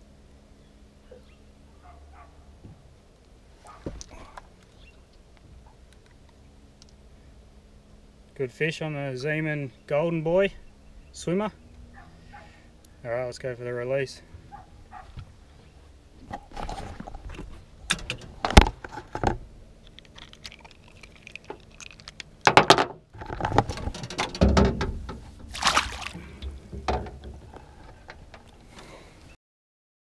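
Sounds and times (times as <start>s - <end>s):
knocks and rattles on boat: 22.5s - 28.4s
fish splashing into river: 25.4s - 26.4s.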